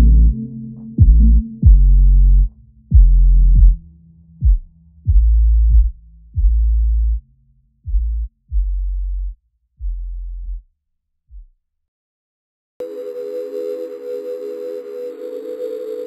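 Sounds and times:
deep bass electronic notes: 0.0 - 10.6.

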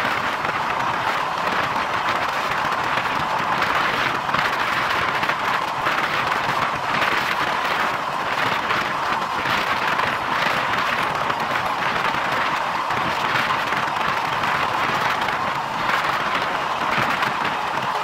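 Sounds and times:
train wheels on rails: 0.0 - 18.0
wind along train coaches: 0.0 - 18.0.

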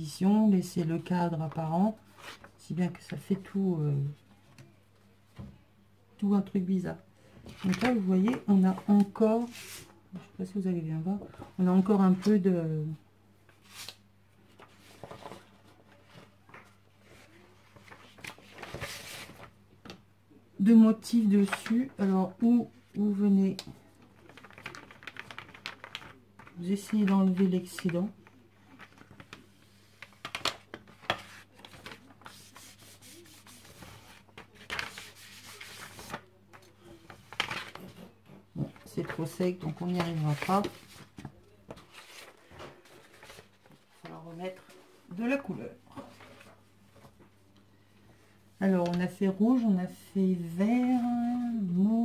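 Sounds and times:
paper rustling: 1.5 - 3.3, 7.4 - 10.0, 13.5 - 19.5, 23.5 - 44.9, 45.9 - 47.3.

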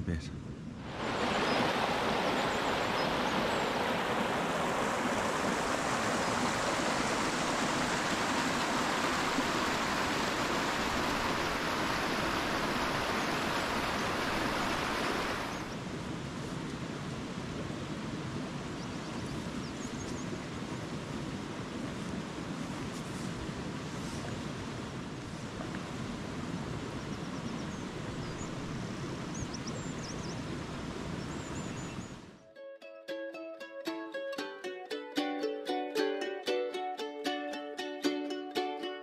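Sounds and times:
water rushing over boulders: 0.8 - 18.7.

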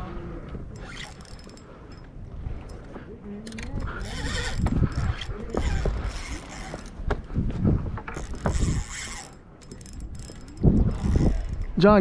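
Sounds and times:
fishing reel cranking: 0.7 - 2.0, 3.4 - 7.0, 8.1 - 11.8.

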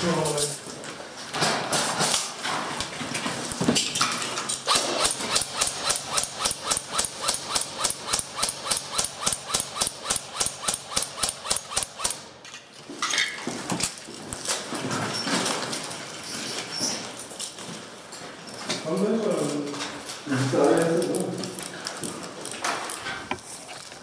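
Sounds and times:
airsoft gun firing: 4.6 - 12.3.

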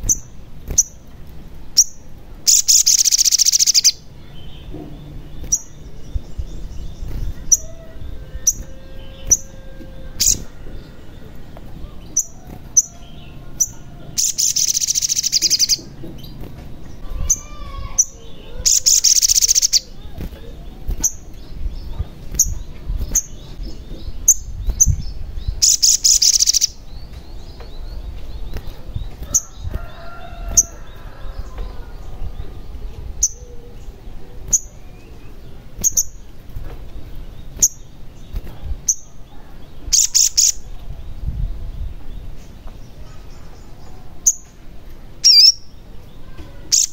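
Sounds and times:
bird high chirps: 0.0 - 44.6, 45.2 - 46.9
bird buzzing trills: 7.0 - 11.4, 28.6 - 32.0.

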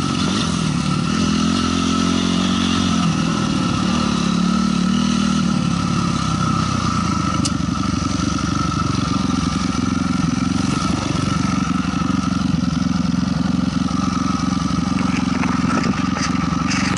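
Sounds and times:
dirt bike engine running: 0.0 - 16.9
clatter: 6.4 - 16.9.

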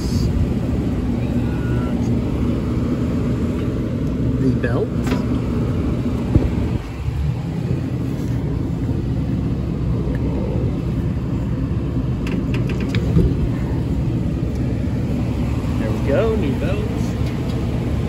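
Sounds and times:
low rumble: 0.0 - 18.0
sharp clicks and knocks: 12.2 - 13.5.

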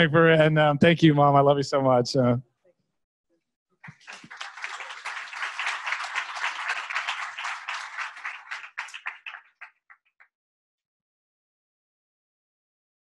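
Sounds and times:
audience applauding: 3.8 - 10.1.

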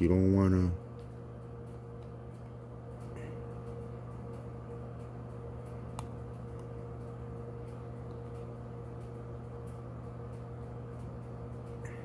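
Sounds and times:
low mechanical hum: 0.0 - 12.0
light click: 5.9 - 6.7.

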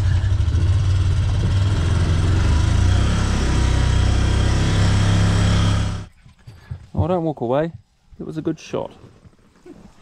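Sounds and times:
vehicle engine droning: 0.0 - 6.1.

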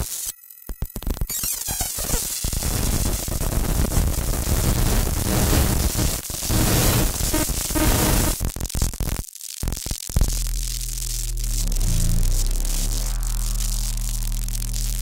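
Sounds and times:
electronic noise music: 10.2 - 15.0.

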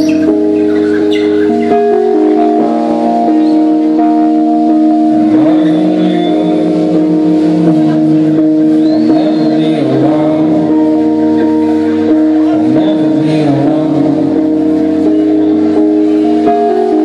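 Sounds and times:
keyboard chords: 0.0 - 17.0
man singing: 5.0 - 15.4.

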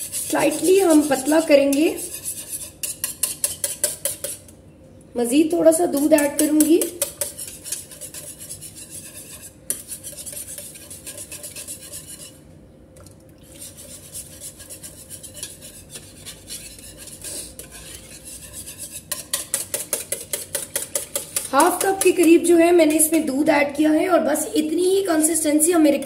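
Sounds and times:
whisk clicking against bowl: 0.0 - 4.5, 6.0 - 12.3, 13.9 - 22.5.

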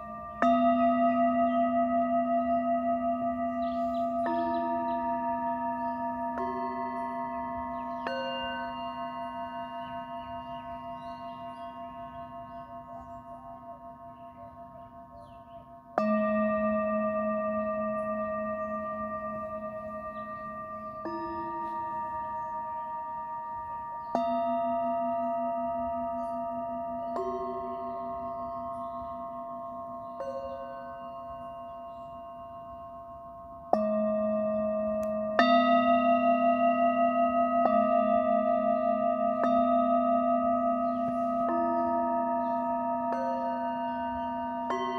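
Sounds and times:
singing bowls ringing: 0.0 - 44.9.

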